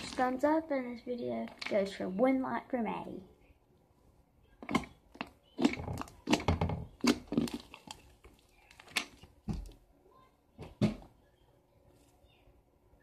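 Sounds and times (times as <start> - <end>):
slime squelching: 0.0 - 0.5, 4.4 - 9.9.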